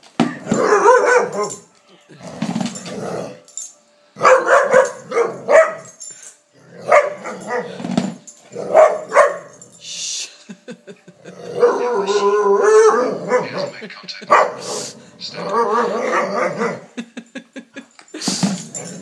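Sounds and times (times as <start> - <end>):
dog barking excitedly: 0.4 - 1.6, 4.2 - 5.9, 6.8 - 7.8, 8.7 - 9.5, 11.6 - 13.7, 14.3 - 14.9, 15.5 - 16.8.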